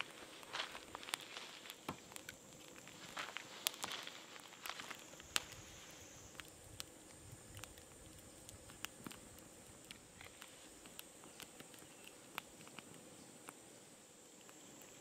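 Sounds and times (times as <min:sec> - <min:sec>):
steady high hiss: 0:00.0 - 0:15.0
sharp ticks: 0:04.6 - 0:13.6.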